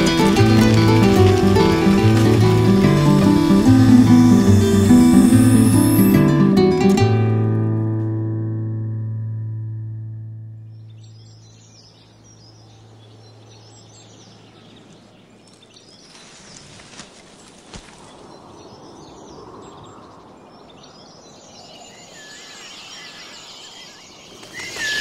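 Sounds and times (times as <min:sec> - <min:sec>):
birds chirping: 0:00.0 - 0:06.2, 0:10.6 - 0:16.8, 0:17.6 - 0:25.0
plucked-string music: 0:00.0 - 0:11.2
soft natural ambience: 0:00.0 - 0:25.0.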